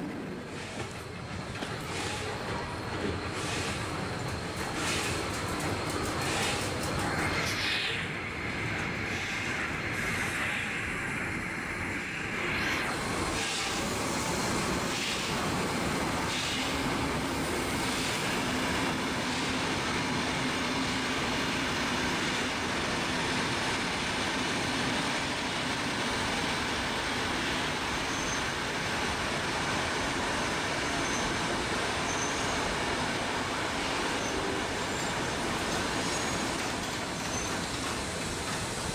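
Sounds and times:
train carriages rolling on rails: 0.0 - 38.9
steam locomotive puffing: 0.4 - 5.3.

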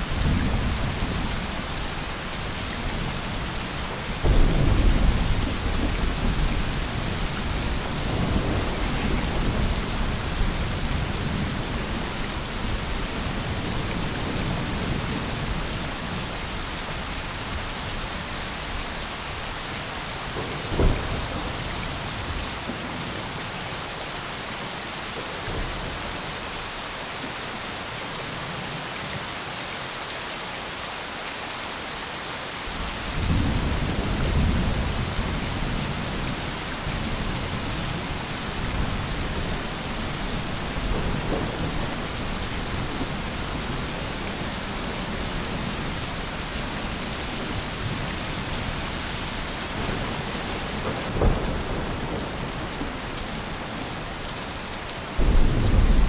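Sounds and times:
thunder rumbling: 0.0 - 16.2, 32.7 - 54.0, 55.2 - 56.0
steady rain: 0.0 - 56.0.

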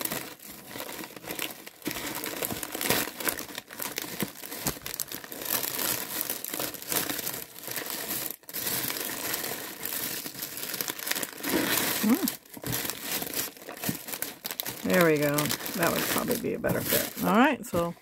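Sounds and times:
plastic bags and paper crinkling: 0.0 - 18.0.

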